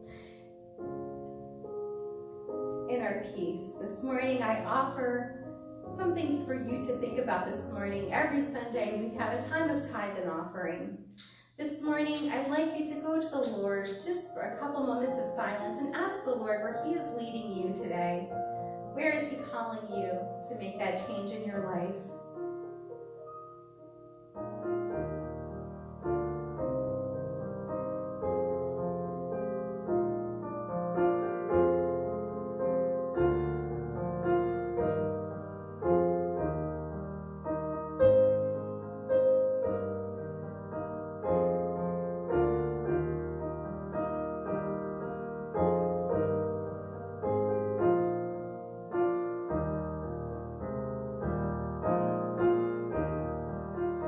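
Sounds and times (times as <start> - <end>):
solo piano chords: 0.0 - 54.0.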